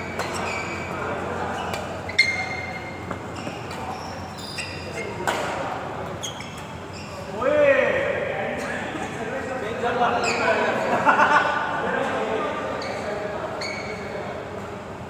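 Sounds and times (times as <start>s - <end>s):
shoes squeaking on court: 0.0s - 7.4s, 10.1s - 10.8s, 12.7s - 14.7s
rackets hitting shuttlecock: 5.2s - 5.8s.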